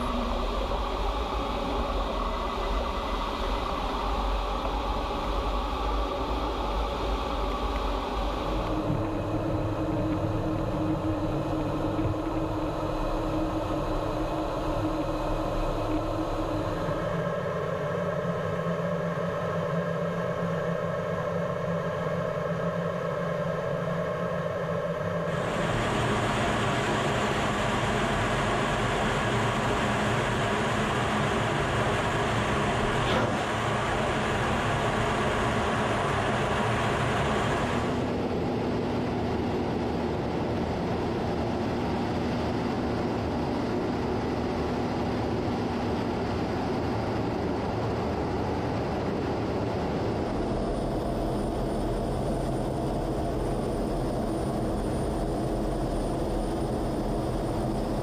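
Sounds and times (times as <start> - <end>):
jet engines droning: 0.0 - 58.0
low hum: 0.0 - 58.0.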